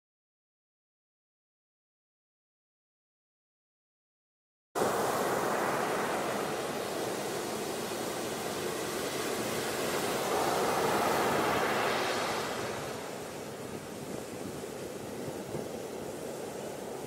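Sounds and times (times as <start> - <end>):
waves breaking and washing in: 4.8 - 17.0.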